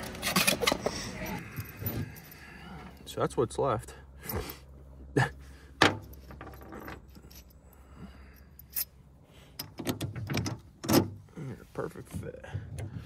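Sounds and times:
small metal hardware clinking: 5.8 - 7.7, 8.3 - 11.2.

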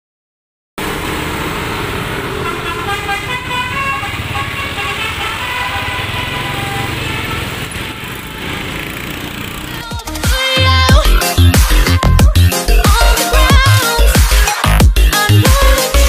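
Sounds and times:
engine rumble: 0.8 - 10.2
street traffic: 0.8 - 16.0
multi-tone bus horn tune: 1.6 - 10.9.

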